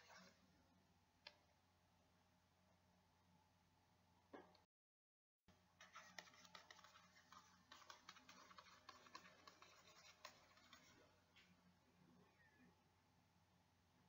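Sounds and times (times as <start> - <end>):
soft keyboard typing: 5.8 - 11.0.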